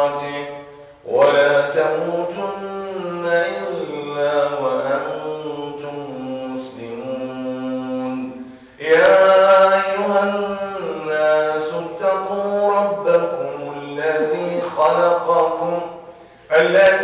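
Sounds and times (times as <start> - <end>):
man chanting melodic recitation: 0.0 - 17.0
man breathing in: 0.7 - 1.0, 8.4 - 8.8, 16.0 - 16.5.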